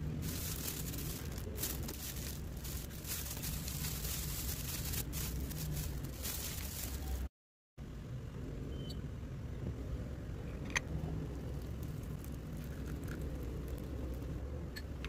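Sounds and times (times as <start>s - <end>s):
thin plastic crinkling: 0.2s - 7.3s.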